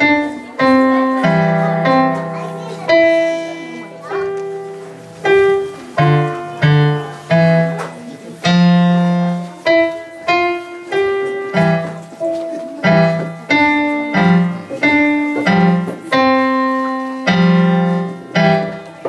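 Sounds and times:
electronic keyboard piano melody: 0:00.0 - 0:19.0.

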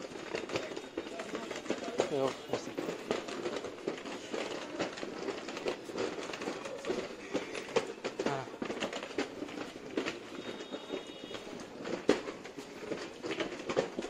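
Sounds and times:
crowd voices: 0:00.0 - 0:08.6
clicks knocks and clattering: 0:00.1 - 0:14.0.

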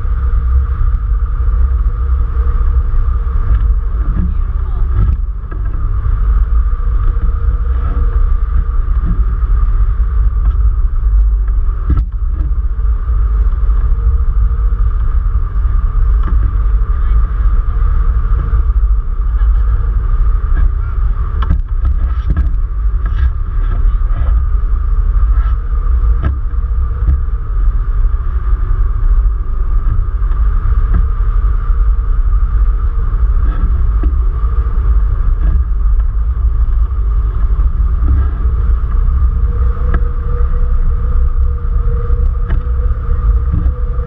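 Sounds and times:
steady high hum: 0:00.0 - 0:44.0
wind rushing on microphone: 0:00.0 - 0:44.0.

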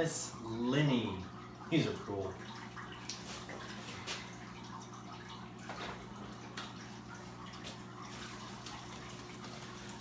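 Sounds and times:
faint water trickle: 0:00.0 - 0:10.0.

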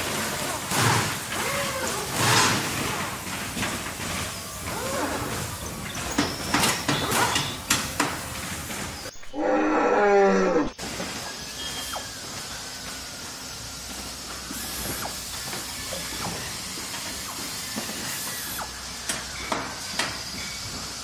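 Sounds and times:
growling roar sound effect: 0:09.3 - 0:10.8.

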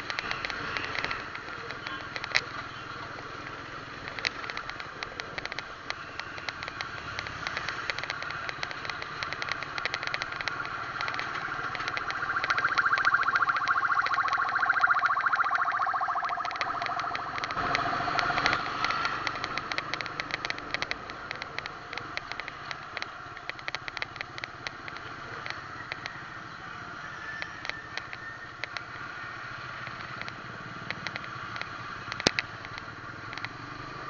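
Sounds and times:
vehicle engines in traffic: 0:00.0 - 0:34.0
rapid ticking: 0:04.0 - 0:25.0
steady tone: 0:11.0 - 0:18.0.

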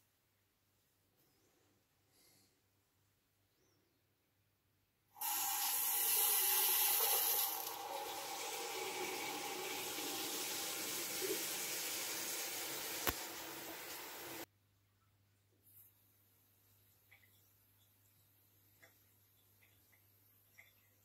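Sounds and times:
water rushing through a valve: 0:05.2 - 0:14.5.

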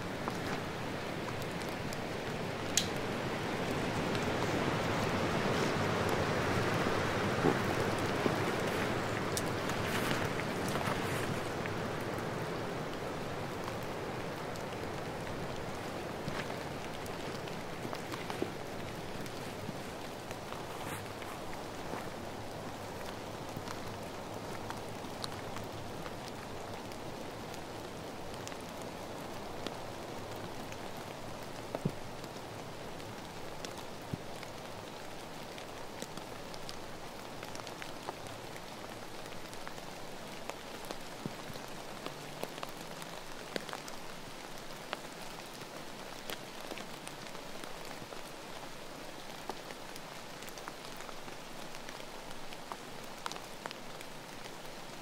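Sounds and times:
steady rain hiss: 0:00.0 - 0:55.0
single raindrops ticking: 0:00.1 - 0:13.0.

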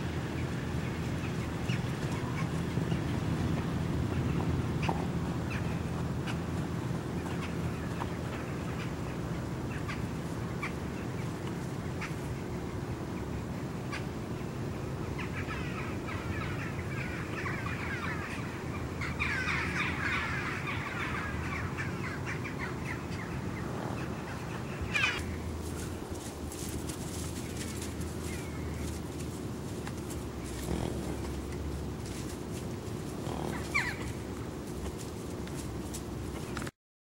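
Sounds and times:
flock of birds calling: 0:00.0 - 0:36.7.

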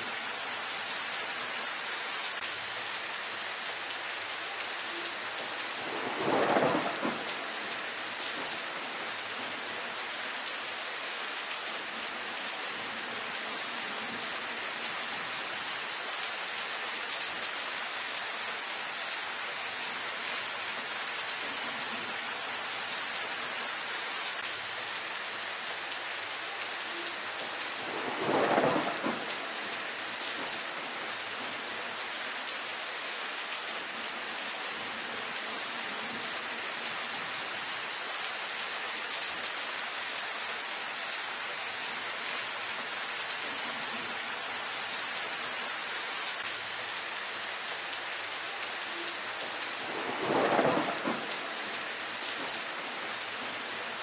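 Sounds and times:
steady rain: 0:00.0 - 0:54.0
thunder rumble: 0:05.4 - 0:09.8, 0:26.9 - 0:31.7, 0:48.9 - 0:53.9.

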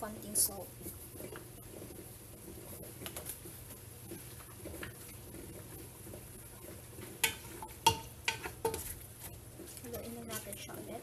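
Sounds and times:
utensil clanking on metal pot: 0:04.1 - 0:09.0.

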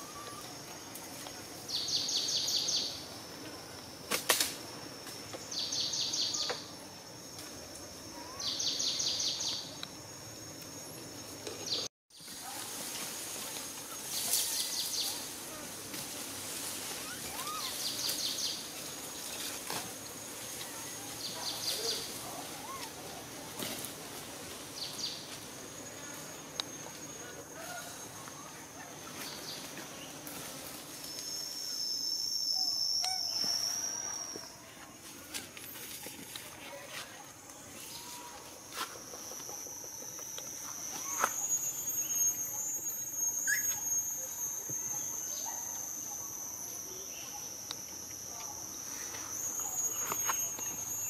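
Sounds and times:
high insect whine: 0:00.0 - 0:51.0
faint rising-and-falling calls: 0:16.7 - 0:19.6, 0:37.5 - 0:51.0
bird chirps: 0:31.7 - 0:34.5, 0:39.2 - 0:51.0.

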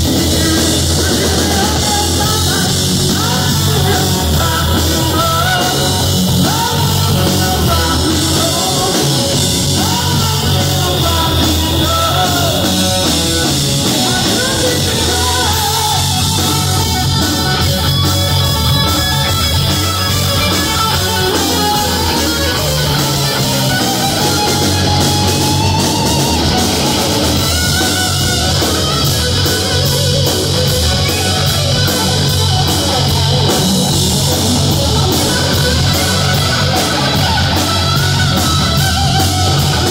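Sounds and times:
man singing lead vocals: 0:00.0 - 0:17.8
bass guitar: 0:00.0 - 0:39.9
drum kit: 0:00.0 - 0:39.9
electric guitars: 0:00.0 - 0:39.9.

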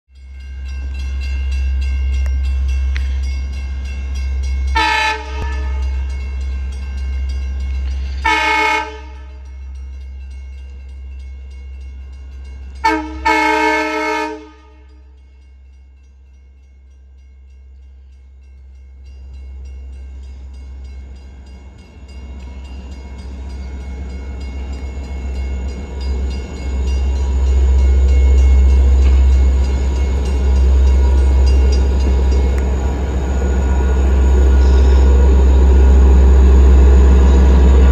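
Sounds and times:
train rumble: 0:00.1 - 0:37.9
train horn blasts: 0:04.7 - 0:06.0, 0:08.2 - 0:09.5, 0:12.8 - 0:15.1.

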